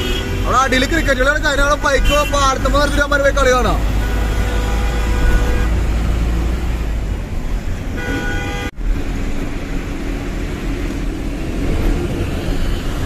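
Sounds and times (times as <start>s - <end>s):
vehicle horn toot: 0.0s - 1.1s, 2.0s - 3.1s, 4.0s - 5.8s, 8.0s - 8.7s
road noise: 0.0s - 13.0s.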